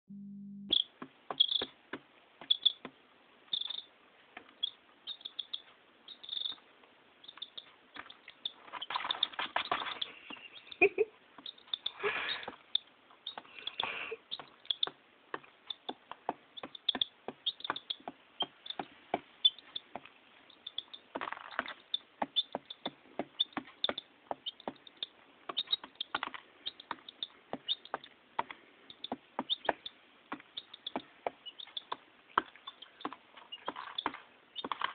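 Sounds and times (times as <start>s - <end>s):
scratchy rustles: 8.6s - 10.6s.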